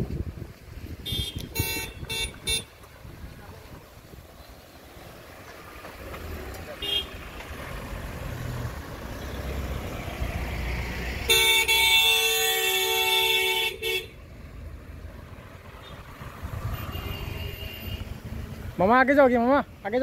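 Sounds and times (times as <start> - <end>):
moving vehicle rumble: 0.0 - 20.0
vehicle horn blaring: 1.0 - 2.8, 6.8 - 7.2, 11.3 - 14.2, 16.7 - 18.2.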